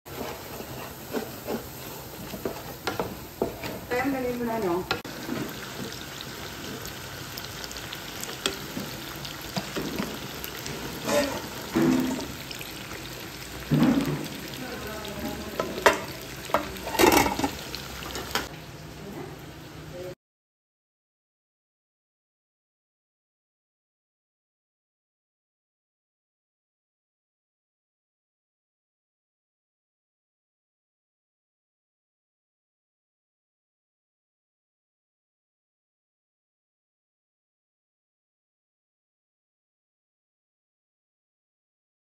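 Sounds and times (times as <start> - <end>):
spatula scraping in a pot: 0.1 - 4.2, 7.8 - 18.5
chicken sizzling in oil: 0.1 - 20.2
utensils knocking on cookware: 15.2 - 18.5.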